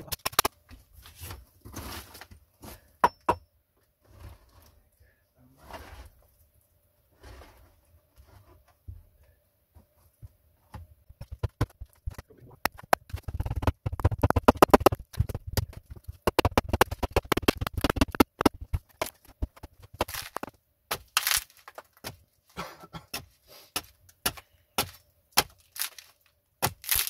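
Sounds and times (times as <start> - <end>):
hatchet chipping wood: 11.2 - 22.2, 23.1 - 26.0, 26.6 - 27.0.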